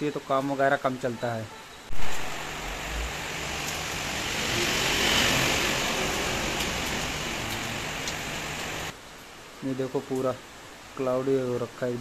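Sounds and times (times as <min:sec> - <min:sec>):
truck engine rumble: 0:01.9 - 0:08.9
tyre hiss on wet road: 0:01.9 - 0:09.0
heavy rain falling: 0:01.9 - 0:12.0.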